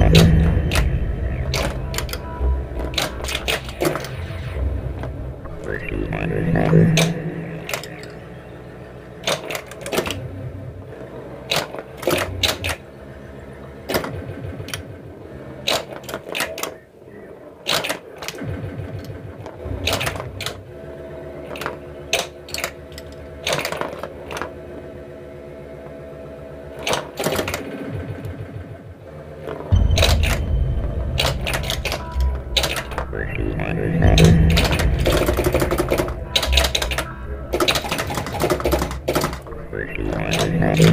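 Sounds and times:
pinball solenoids clacking: 0:00.0 - 0:02.2, 0:02.8 - 0:04.2, 0:09.2 - 0:10.2, 0:21.5 - 0:24.6, 0:26.8 - 0:28.4, 0:31.1 - 0:33.2, 0:34.1 - 0:40.9
electronic background tones: 0:00.0 - 0:09.2, 0:29.7 - 0:40.9.

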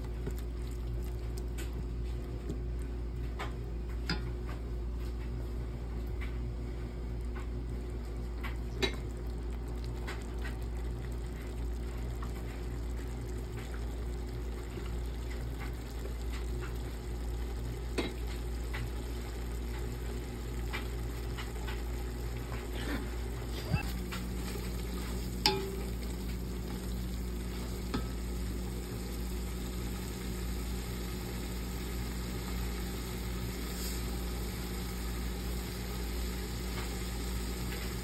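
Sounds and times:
spatula stirring in a pot: 0:10.0 - 0:32.0
food sizzling in a pot: 0:13.5 - 0:38.0
spatula tapping metal pot: 0:25.4 - 0:26.0.

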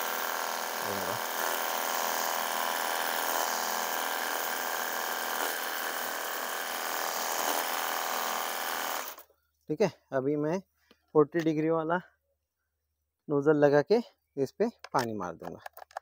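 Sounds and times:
pump motor buzzing whine: 0:00.0 - 0:09.3.

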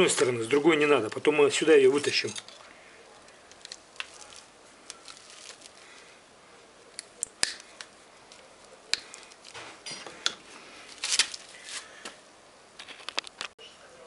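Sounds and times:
wire cutters snipping copper wire: 0:06.9 - 0:10.4.

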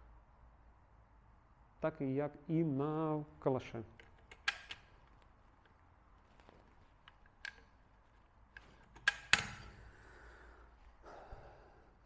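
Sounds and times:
metal gun parts clicking: 0:04.0 - 0:05.8, 0:06.4 - 0:07.9, 0:08.5 - 0:09.8.

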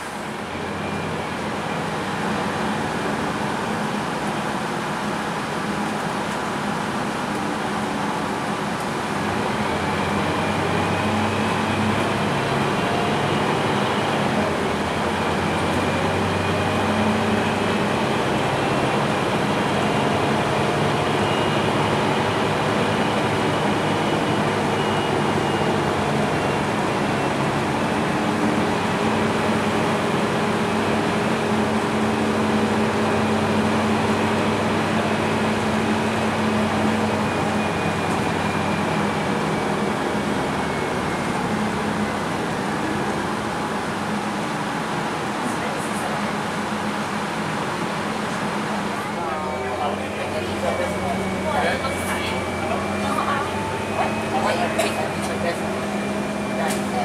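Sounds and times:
bus diesel engine drone: 0:00.0 - 0:57.0.

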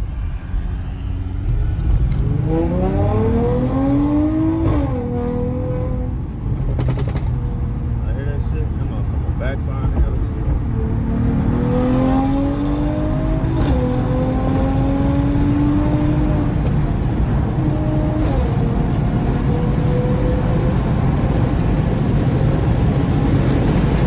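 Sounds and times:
car engine accelerating: 0:00.0 - 0:24.0
road rumble: 0:00.0 - 0:24.0
gear shift crack: 0:06.7 - 0:07.4.

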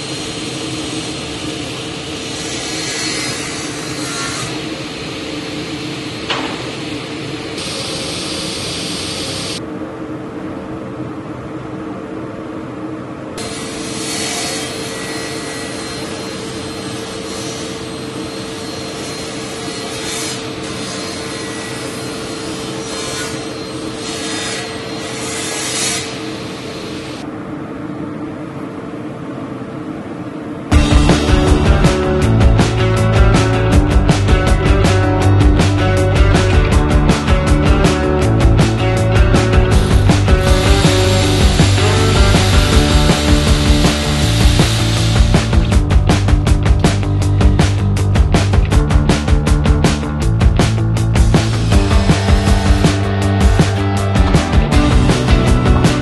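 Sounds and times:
saw blade cutting wood: 0:02.2 - 0:04.7, 0:13.4 - 0:27.1, 0:39.8 - 0:45.7
table saw motor humming: 0:30.7 - 0:47.8, 0:51.2 - 0:56.0.

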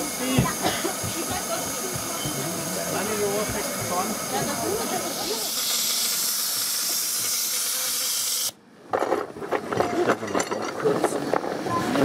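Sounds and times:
steam hissing: 0:00.0 - 0:08.6.

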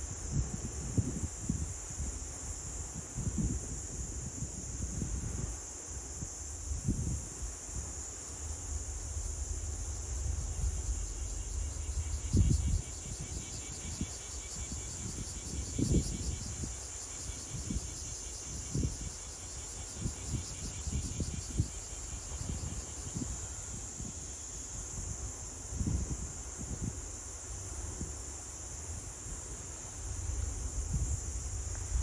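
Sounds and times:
insects trilling: 0:00.0 - 0:32.0
wind buffeting microphone: 0:00.1 - 0:32.0.

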